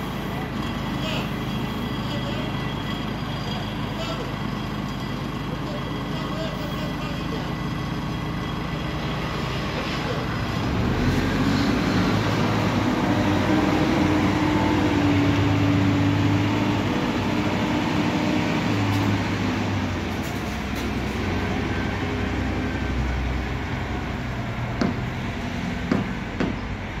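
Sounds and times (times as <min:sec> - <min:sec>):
diesel engine under load: 0:00.0 - 0:27.0
sharp knocks: 0:24.8 - 0:25.1, 0:25.8 - 0:26.6.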